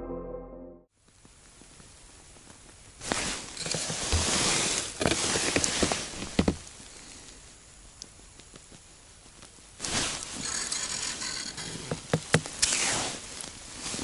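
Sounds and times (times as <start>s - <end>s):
clothing rustling: 3.0s - 6.6s.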